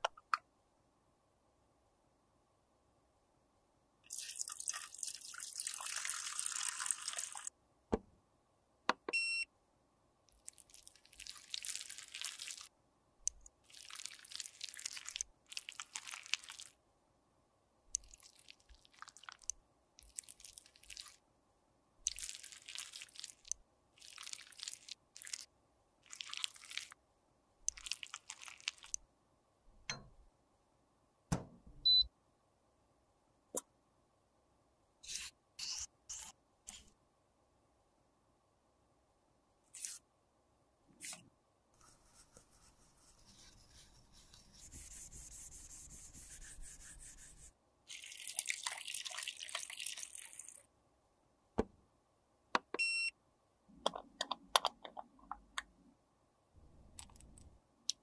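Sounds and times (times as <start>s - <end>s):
wet squelchy stirring in a jar: 13.7s - 16.7s, 18.0s - 21.2s, 22.0s - 27.0s, 27.7s - 29.0s
electronic beep: 31.8s - 32.1s.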